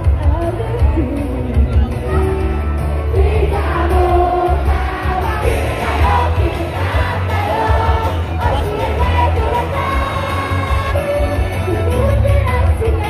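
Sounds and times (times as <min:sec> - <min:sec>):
backing track with heavy bass: 0:00.0 - 0:13.0
person singing into a microphone: 0:00.0 - 0:13.0.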